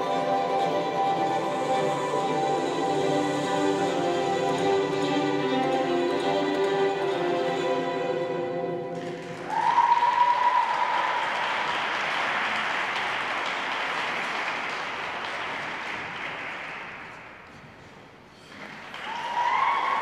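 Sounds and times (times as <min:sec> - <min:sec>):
spectators applauding: 0:09.0 - 0:17.3, 0:18.6 - 0:20.0
high-pitched whoop: 0:09.4 - 0:11.2, 0:19.0 - 0:20.0.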